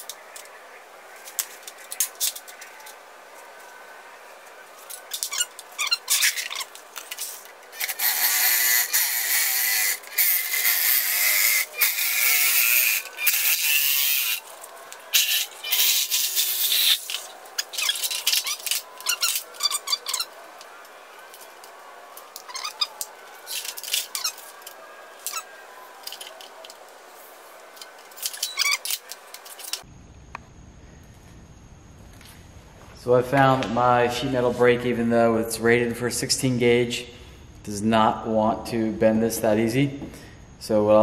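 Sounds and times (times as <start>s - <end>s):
electric metal shears cutting: 7.8s - 14.5s.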